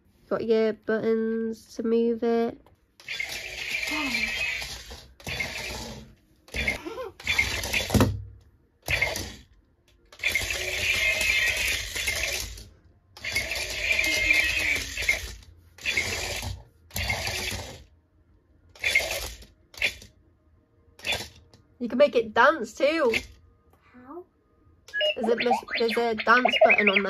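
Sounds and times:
toy robot motors whirring: 3.0 - 8.1, 8.8 - 17.9, 18.7 - 20.1, 21.0 - 21.4, 23.1 - 23.4, 24.9 - 27.0.

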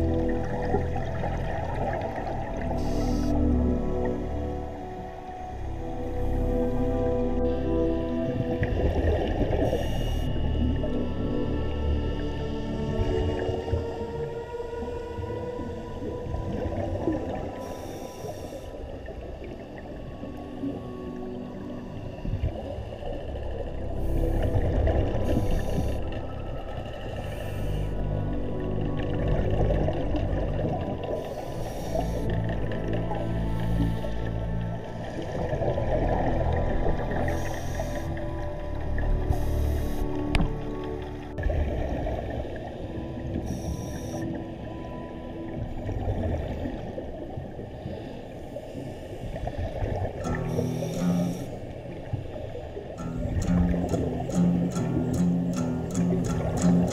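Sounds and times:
hissing regulator bubbles: 0.0 - 11.4, 22.4 - 44.4, 47.8 - 56.9
faint steady tones: 0.0 - 56.9
underwater low rumble: 0.0 - 56.9.

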